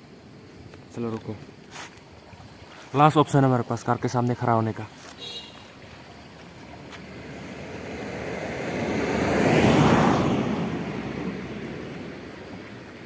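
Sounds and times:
vehicle driving past: 0:06.0 - 0:12.9.

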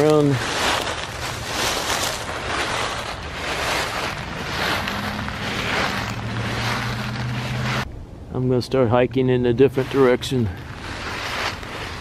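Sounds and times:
footsteps through dry leaves: 0:00.0 - 0:07.9, 0:09.6 - 0:12.0.

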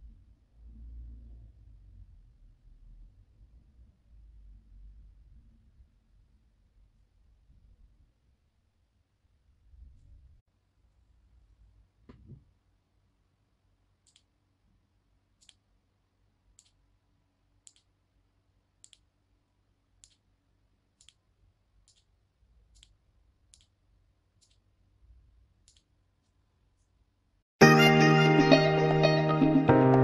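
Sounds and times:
music: 0:27.6 - 0:30.0.

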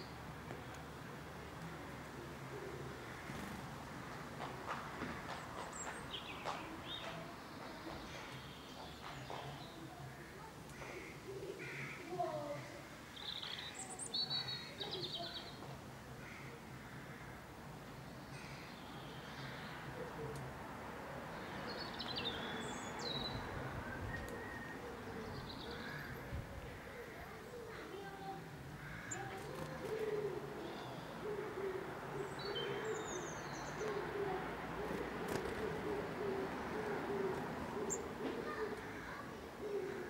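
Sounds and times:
small songbirds chirping and trilling: 0:00.0 - 0:04.2, 0:05.2 - 0:38.9
pigeon cooing: 0:29.2 - 0:33.2, 0:33.8 - 0:40.0.

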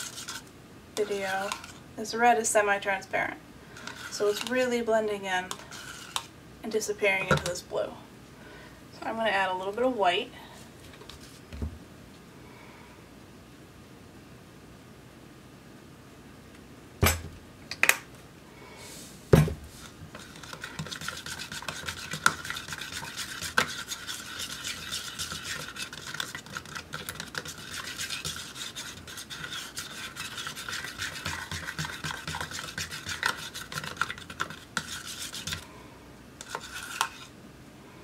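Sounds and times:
brush stirring paint in plastic cup: 0:00.0 - 0:01.8, 0:03.8 - 0:06.3, 0:07.1 - 0:07.6, 0:19.7 - 0:35.7, 0:36.4 - 0:37.4.

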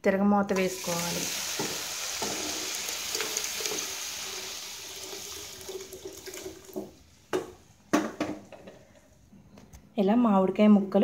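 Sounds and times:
liquid splashing and sizzling: 0:00.6 - 0:07.2.

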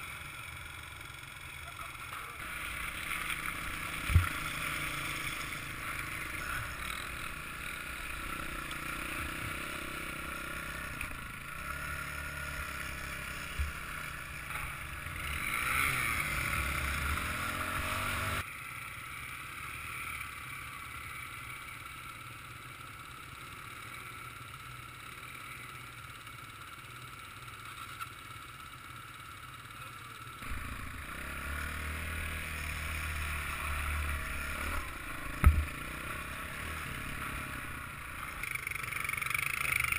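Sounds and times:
motorbike engine revving: 0:00.0 - 0:18.5, 0:30.4 - 0:39.9.

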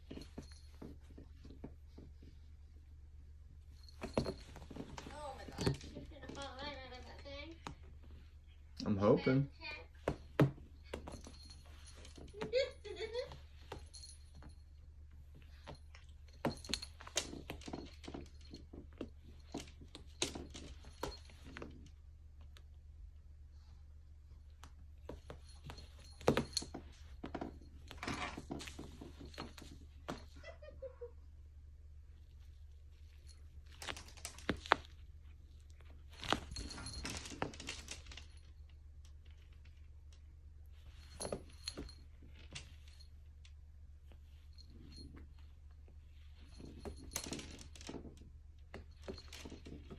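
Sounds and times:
metal collar tag jingling: 0:35.9 - 0:38.8.

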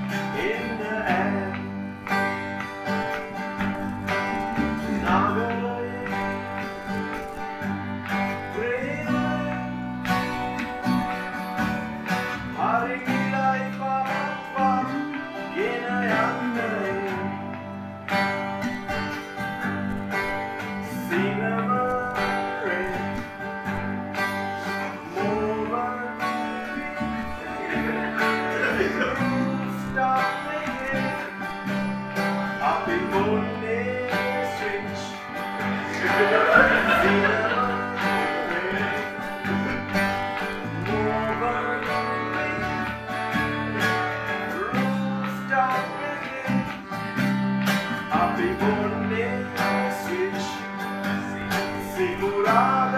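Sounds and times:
man singing: 0:00.0 - 0:02.1, 0:04.3 - 0:06.8, 0:08.3 - 0:10.4, 0:12.4 - 0:17.8, 0:20.8 - 0:23.4, 0:24.6 - 0:31.6, 0:32.4 - 0:46.9, 0:48.0 - 0:52.9
bass: 0:00.0 - 0:52.9
strummed acoustic guitar: 0:00.0 - 0:52.9
harmonium: 0:13.7 - 0:52.9.

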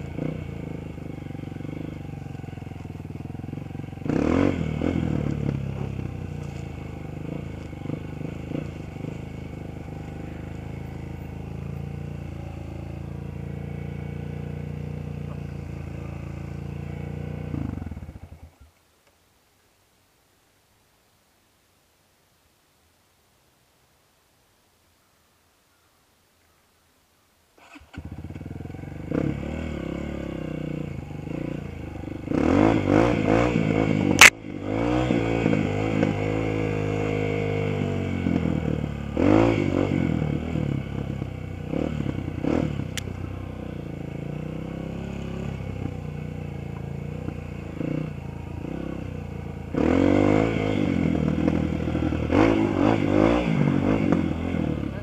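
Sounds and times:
dirt bike engine revving: 0:00.0 - 0:18.5, 0:27.6 - 0:55.0
faint click: 0:19.0 - 0:19.2.

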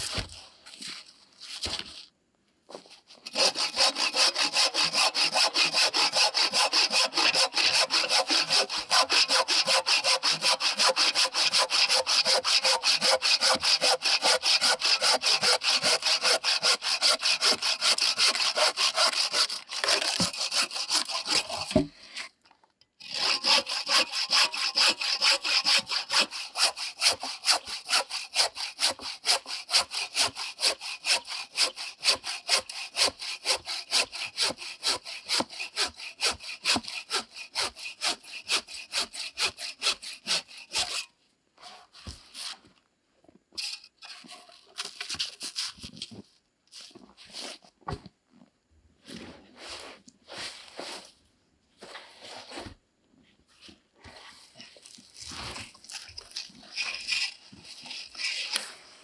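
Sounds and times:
handsaw cutting wood: 0:03.2 - 0:21.9, 0:23.0 - 0:41.1, 0:55.2 - 0:59.0.

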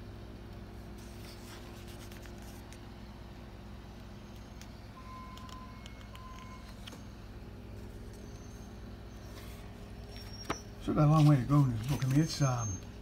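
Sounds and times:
steady low hum: 0:00.0 - 0:13.0
book pages rustling: 0:00.8 - 0:02.9, 0:09.3 - 0:12.4.

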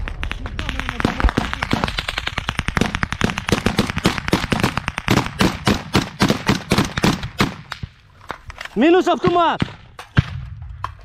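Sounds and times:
rapid rifle fire: 0:00.0 - 0:07.8
loud close rifle shots: 0:00.2 - 0:07.9.

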